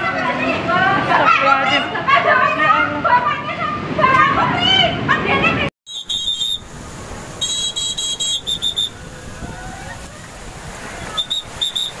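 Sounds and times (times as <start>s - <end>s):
heavy surf washing: 0.0s - 12.0s
shrill whistle blasts: 5.9s - 6.7s, 7.4s - 9.0s, 11.1s - 12.0s.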